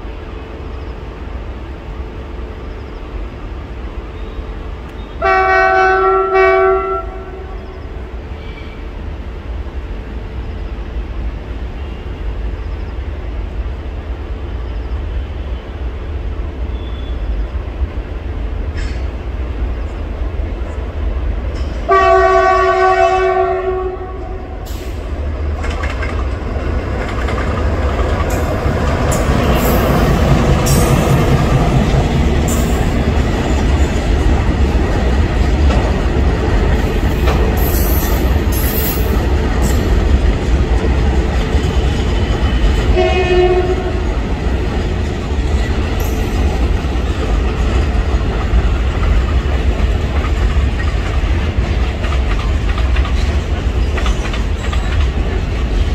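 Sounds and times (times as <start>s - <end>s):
goods train rumble: 0.0s - 55.9s
locomotive horn blast: 5.1s - 7.8s, 21.9s - 24.6s, 42.9s - 44.1s
wheels clattering over rail joints: 24.7s - 43.0s, 44.2s - 55.9s.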